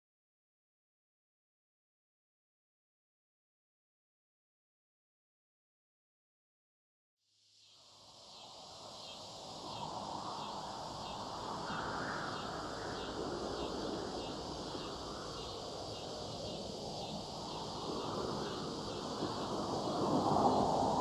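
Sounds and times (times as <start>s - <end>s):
high insect chorus: 7.4s - 21.0s
low background noise: 7.6s - 21.0s.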